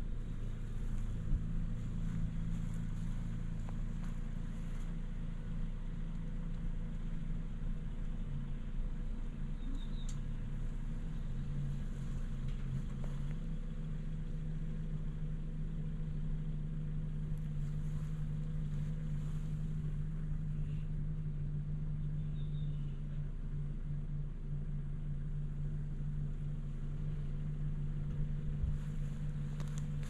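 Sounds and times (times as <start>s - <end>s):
vehicle engine idling: 0.0s - 30.0s
faint high chirp: 9.4s - 10.5s, 21.9s - 23.2s.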